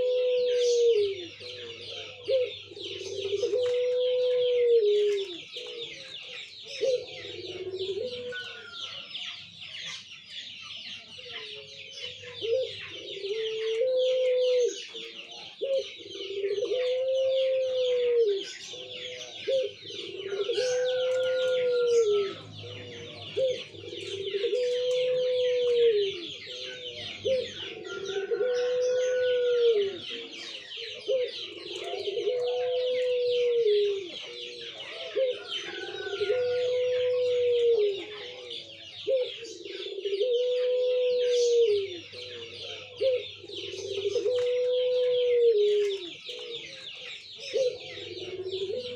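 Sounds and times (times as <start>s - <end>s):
dove cooing: 0.0s - 48.9s.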